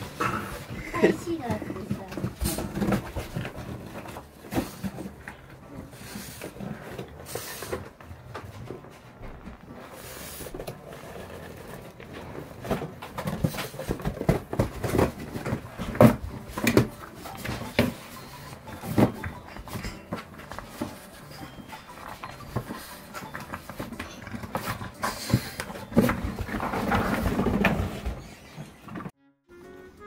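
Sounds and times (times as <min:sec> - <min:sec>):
cardboard box knocking and scraping: 0:09.3 - 0:21.1.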